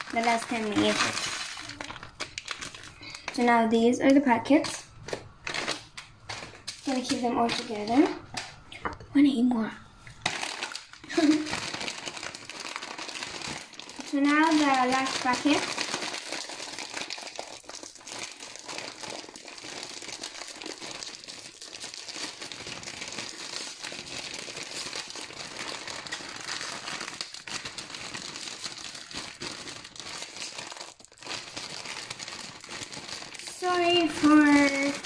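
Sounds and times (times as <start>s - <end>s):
plastic packet crinkling: 0.0s - 8.6s, 10.1s - 35.0s.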